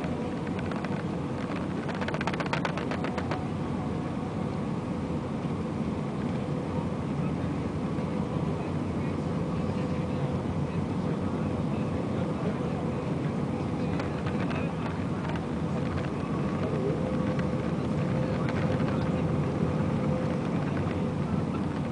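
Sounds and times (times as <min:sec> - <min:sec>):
aircraft engines and airflow rushing: 0:00.0 - 0:21.9
rattle of rapid clicks: 0:00.4 - 0:03.4.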